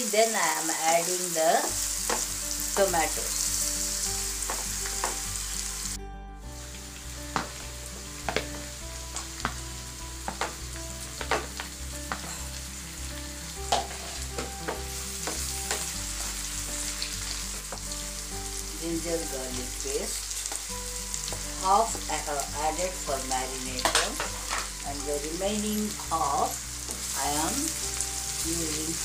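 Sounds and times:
onions sizzling in oil: 0.0s - 29.0s
wooden spatula knocking on pan: 8.3s - 8.6s, 10.3s - 10.6s, 11.2s - 12.3s.

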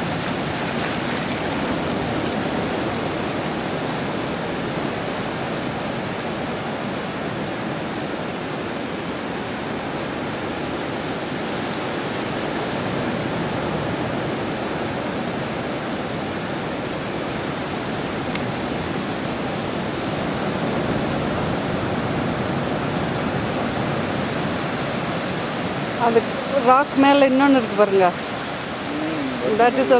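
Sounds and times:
sea water surging over rocks: 0.0s - 29.9s.

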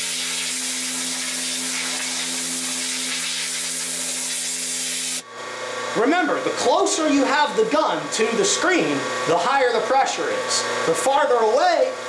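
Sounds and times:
pressure washer spray hissing: 0.0s - 5.2s
electric pump hum: 0.0s - 12.0s.

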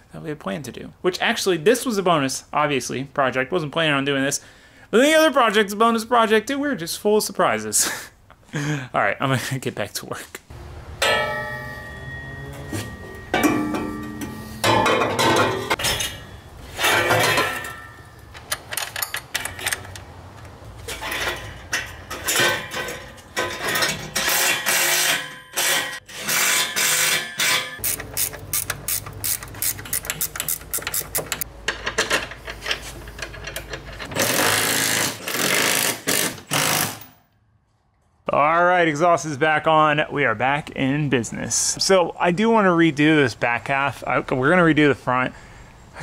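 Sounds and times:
metal exhaust clanks and clicks: 11.0s - 26.1s, 26.8s - 34.2s.

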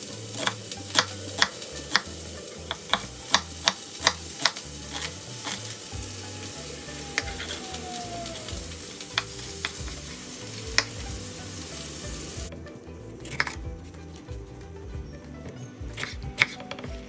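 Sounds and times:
steady hiss: 0.0s - 12.5s
soft background music: 0.0s - 17.0s
knife striking wooden cutting board: 13.2s - 13.7s, 15.9s - 16.9s.

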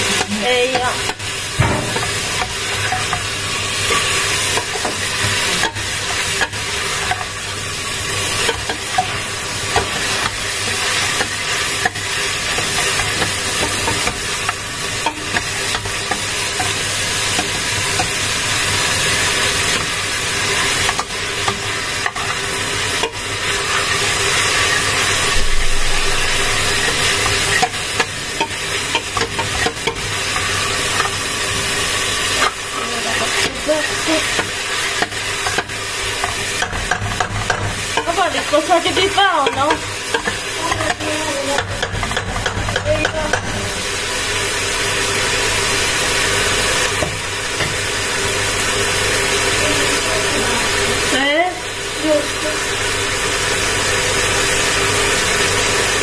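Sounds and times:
food sizzling in frying pan: 0.0s - 56.0s
utensil clicking against pan: 8.4s - 18.2s, 20.6s - 22.4s, 27.2s - 31.2s, 32.4s - 43.6s.

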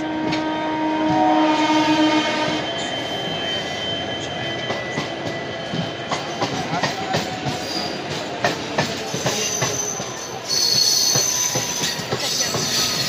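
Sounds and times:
train horn: 0.0s - 3.0s
train wheels rumbling on rails: 0.0s - 13.0s.

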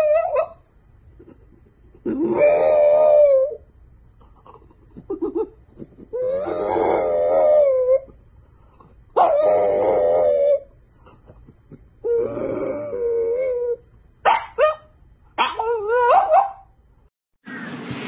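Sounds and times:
dog howling: 2.2s - 3.6s, 6.2s - 8.1s, 9.2s - 10.7s, 12.0s - 13.8s, 15.4s - 16.6s.

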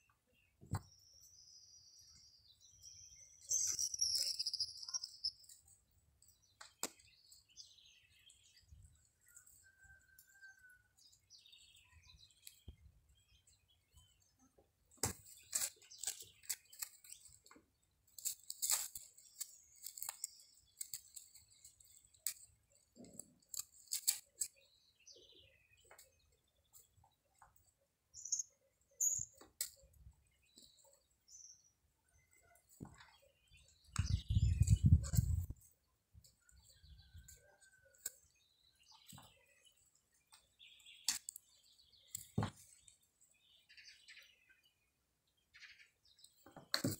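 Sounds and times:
bird chirps: 0.0s - 14.6s, 18.8s - 35.8s, 36.4s - 46.6s
kittens rustling in dry grass: 18.0s - 24.6s.

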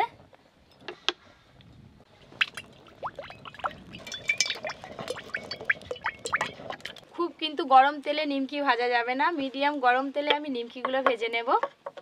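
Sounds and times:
oil glugging into metal pan: 2.3s - 7.1s.

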